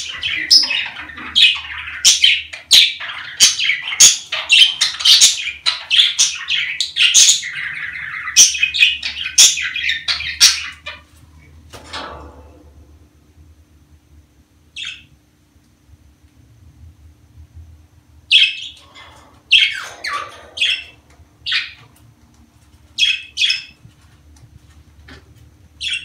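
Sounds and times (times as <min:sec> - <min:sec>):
budgerigars chattering: 0:00.0 - 0:11.0, 0:18.3 - 0:21.8, 0:23.0 - 0:23.8, 0:25.8 - 0:26.0.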